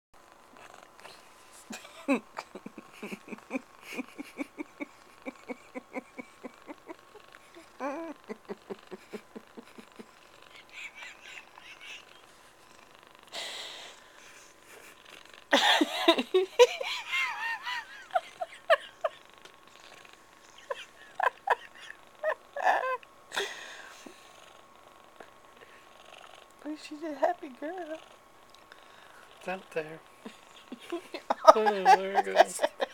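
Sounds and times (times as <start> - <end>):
cat purring: 0.2 - 32.9
person laughing: 1.7 - 12.2, 15.5 - 19.2, 20.6 - 23.7, 30.7 - 32.9.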